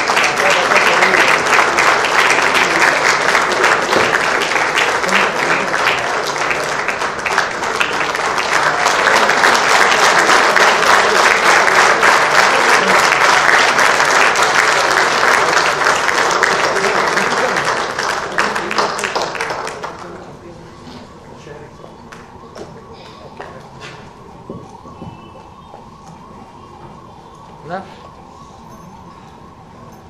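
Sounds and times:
audience applauding: 0.0s - 20.4s.

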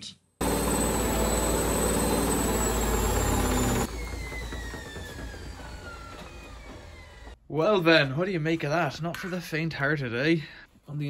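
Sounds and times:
washing machine drum spinning: 0.5s - 7.4s.

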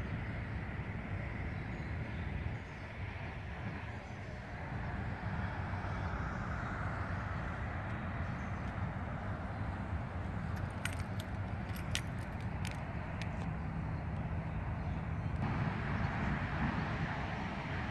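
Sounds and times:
traffic rumble: 0.0s - 17.9s
tyre noise of passing vehicle: 0.0s - 17.9s
sharp clicks: 10.5s - 13.5s.

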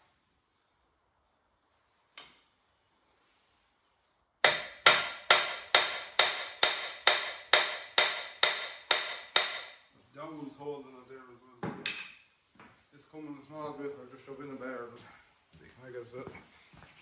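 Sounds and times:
hammer striking steel: 4.4s - 9.8s.

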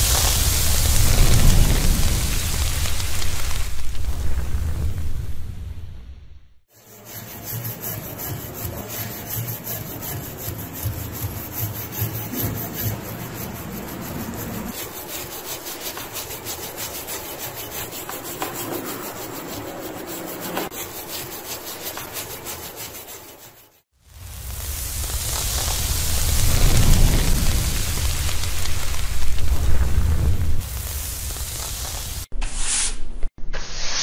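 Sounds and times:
hiss: 0.0s - 5.5s, 7.0s - 34.0s
wire brush scrubbing steel: 6.7s - 23.9s.

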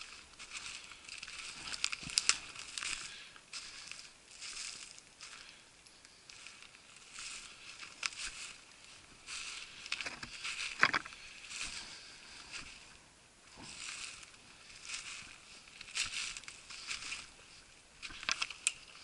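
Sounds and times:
twigs brushing past: 0.0s - 5.4s
footsteps crunching through snow: 0.0s - 5.6s, 6.2s - 19.0s.

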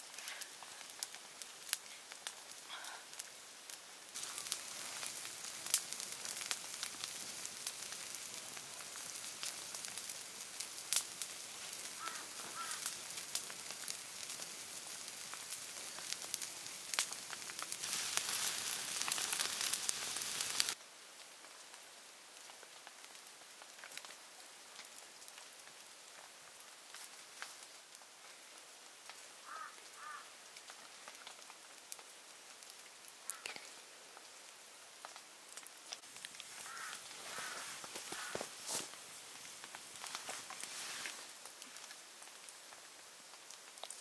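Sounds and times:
campfire crackling and popping: 0.0s - 44.0s.

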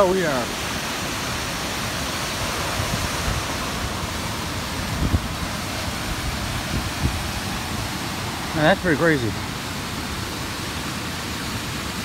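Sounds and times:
waterfall rushing: 0.0s - 12.0s
wind buffeting microphone: 2.2s - 8.4s.

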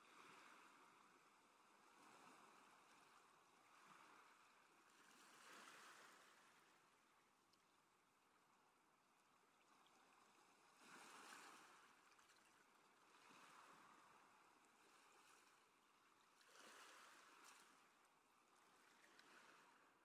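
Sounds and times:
sea water rushing along hulls: 9.9s - 15.8s.

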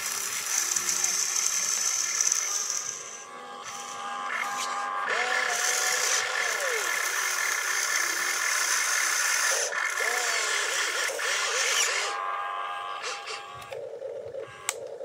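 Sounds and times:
toy excavator motors whining: 0.0s - 15.0s
low hum: 0.9s - 9.1s.

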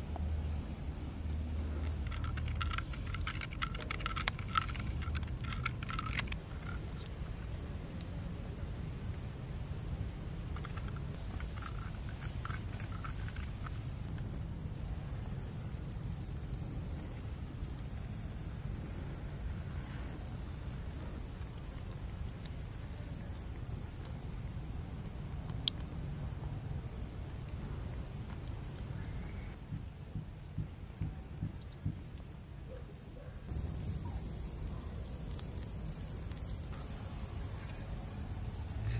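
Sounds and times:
insects buzzing: 0.0s - 38.9s.

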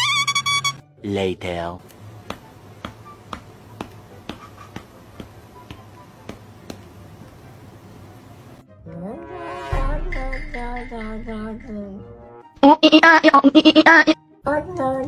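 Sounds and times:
low hum: 7.6s - 12.3s.

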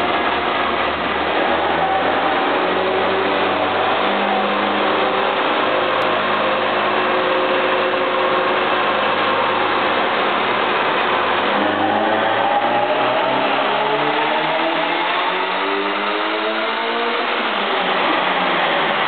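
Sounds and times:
turbocharged engine revving: 0.0s - 19.0s.

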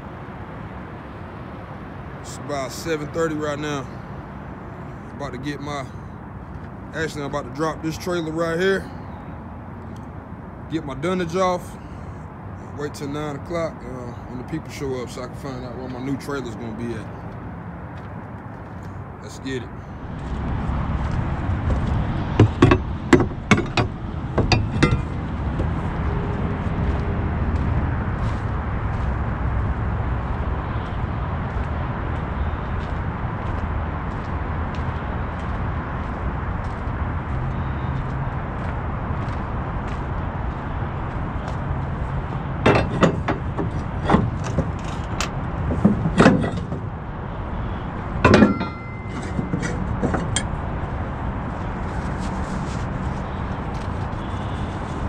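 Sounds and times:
wooden boards knocking: 22.3s - 25.7s, 42.6s - 46.9s, 48.2s - 50.5s
gear knocking on wooden deck: 22.4s - 25.7s.

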